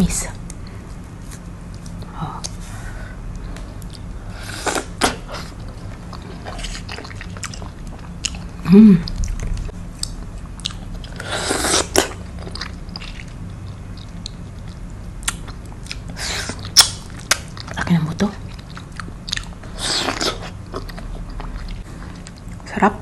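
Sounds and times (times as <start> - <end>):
wet chewing: 4.7 - 17.8, 18.4 - 22.6
person humming: 8.6 - 9.2.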